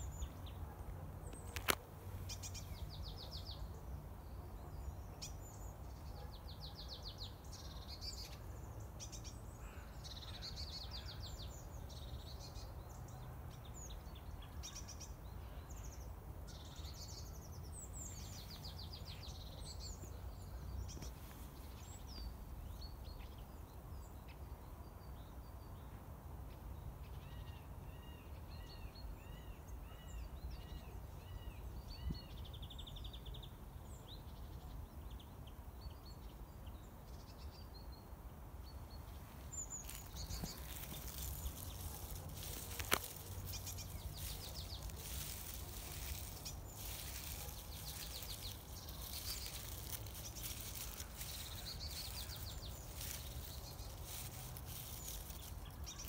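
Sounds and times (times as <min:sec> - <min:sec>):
songbirds singing rapid trills: 0:00.0 - 0:56.0.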